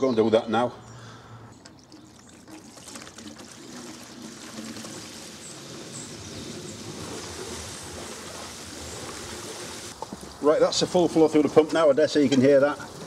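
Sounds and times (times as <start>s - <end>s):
water rushing through pipes: 1.6s - 10.0s.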